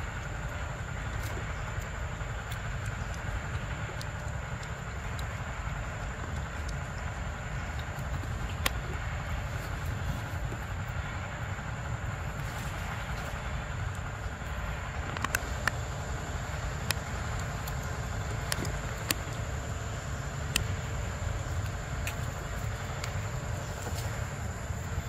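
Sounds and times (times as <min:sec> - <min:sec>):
sharp clicks: 0:00.0 - 0:11.1, 0:12.8 - 0:25.0
outdoor rumble and hiss: 0:00.0 - 0:25.0.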